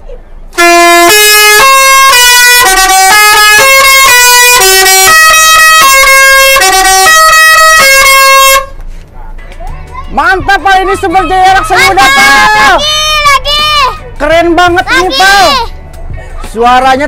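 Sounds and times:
bus horn playing a tune: 0:00.5 - 0:08.8.

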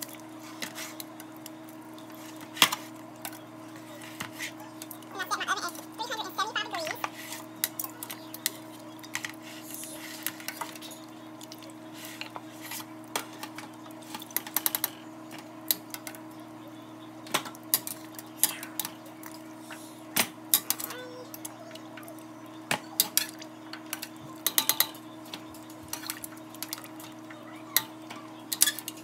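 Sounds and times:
steady low hum: 0:00.0 - 0:29.0
metal tongs clinking on a pot: 0:23.0 - 0:25.0, 0:28.5 - 0:29.0.

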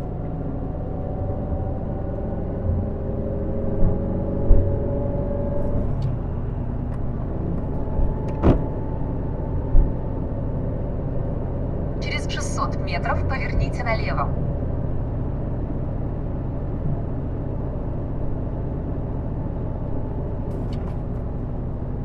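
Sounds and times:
car engine and tyre rumble: 0:00.0 - 0:22.0
low thumps from road: 0:03.8 - 0:04.9, 0:06.8 - 0:08.9.

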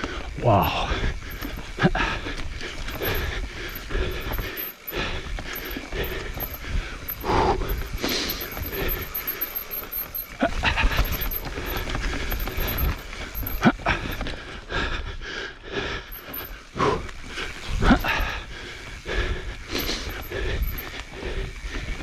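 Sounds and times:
bike rattling: 0:00.0 - 0:22.0
bike tyres rolling over dirt: 0:00.0 - 0:22.0.

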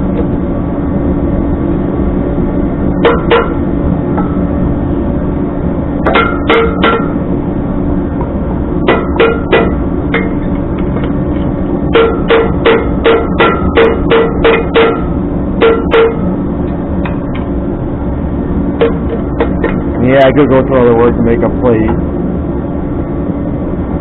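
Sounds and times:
hammer clanking on steel: 0:03.0 - 0:03.6, 0:06.1 - 0:07.2, 0:08.8 - 0:11.2, 0:11.9 - 0:16.3.

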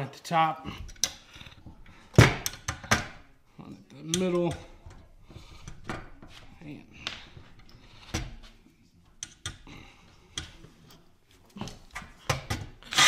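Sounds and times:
clicks of rivets and metal parts: 0:00.8 - 0:03.2, 0:04.0 - 0:06.4, 0:09.1 - 0:09.7.

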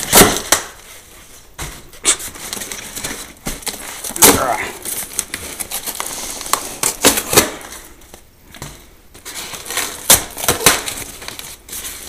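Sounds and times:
styrofoam crunching and snapping: 0:00.0 - 0:00.8, 0:02.0 - 0:08.2, 0:09.2 - 0:12.0
cardboard box tearing: 0:02.1 - 0:07.7.

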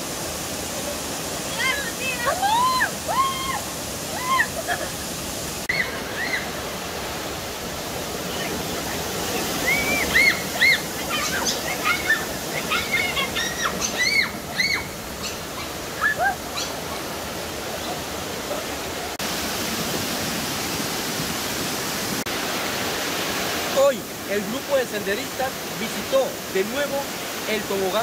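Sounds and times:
water rushing over rocks: 0:00.0 - 0:28.0
people shrieking: 0:16.0 - 0:16.4.

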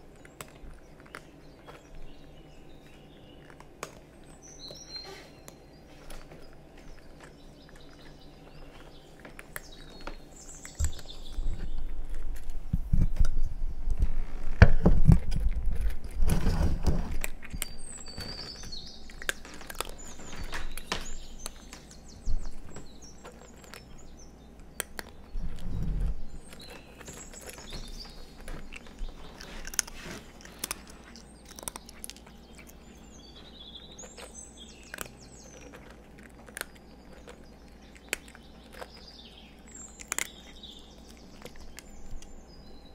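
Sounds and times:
birds chirping: 0:00.0 - 0:42.9
cat crunching dry kibble: 0:00.0 - 0:42.9
microphone handling knocks: 0:12.7 - 0:17.2.

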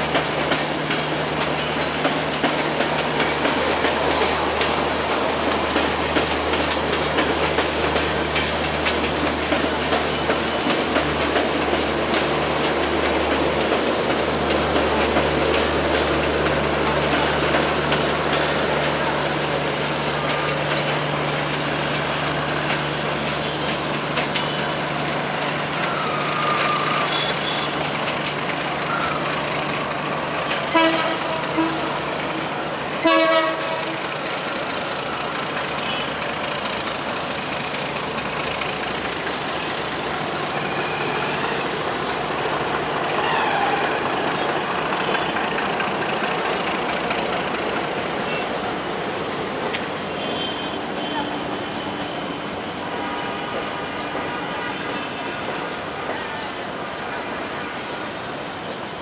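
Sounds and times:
diesel locomotive engine hum: 0:00.0 - 0:59.0
train rolling noise: 0:00.0 - 0:59.0
train horn toots and blast: 0:26.0 - 0:27.8, 0:30.7 - 0:32.1, 0:33.0 - 0:34.0, 0:50.2 - 0:52.3.

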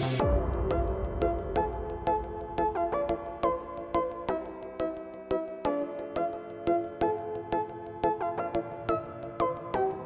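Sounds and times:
steady beat: 0:00.0 - 0:02.8.

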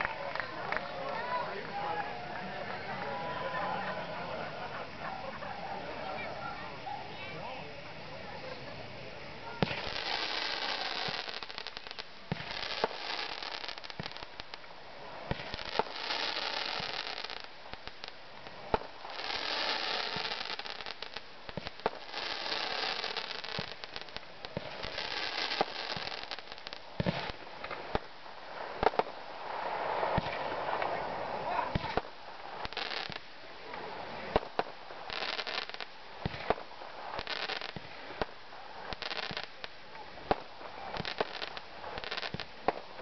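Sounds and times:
fireworks sparks crackling: 0:00.0 - 0:43.0
firework bangs: 0:09.4 - 0:43.0.

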